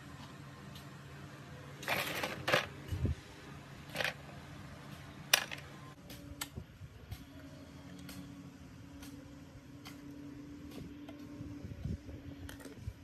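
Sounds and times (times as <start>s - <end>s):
metal parts clicking and clinking: 1.8s - 2.8s, 3.9s - 4.3s, 5.3s - 5.8s
metal scrape: 1.8s - 3.0s.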